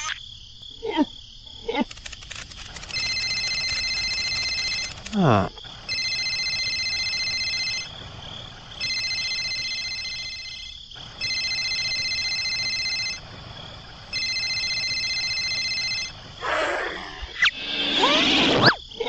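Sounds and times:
electronic telephone ringing: 2.8s - 5.1s, 5.9s - 7.9s, 8.8s - 13.2s, 14.1s - 16.2s.

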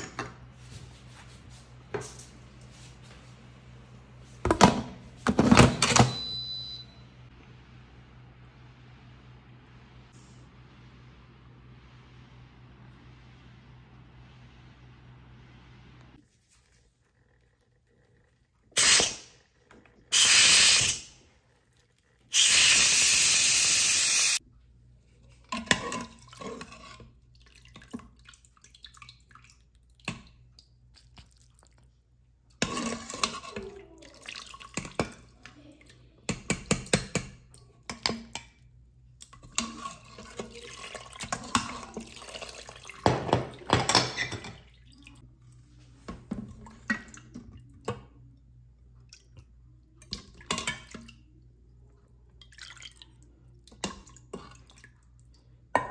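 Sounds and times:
dishes clinking and clattering: 43.0s - 44.8s.

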